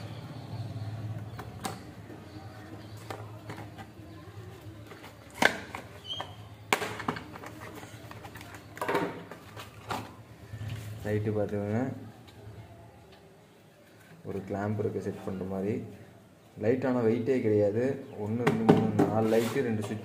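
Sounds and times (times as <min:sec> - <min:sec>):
scrapes crinkles and clicks: 0:07.2 - 0:10.8
rustling of packaging: 0:07.2 - 0:11.0.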